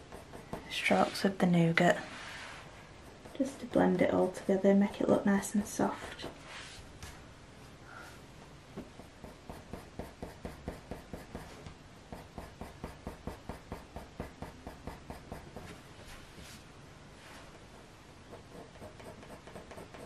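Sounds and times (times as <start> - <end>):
coloured pencil scratching on paper: 0.0 - 6.4, 9.0 - 15.8, 18.2 - 20.0.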